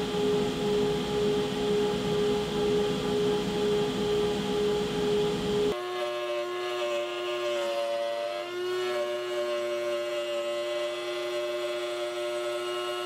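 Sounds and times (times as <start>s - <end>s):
router whining: 0.0s - 13.0s
router cutting a board: 5.3s - 13.0s.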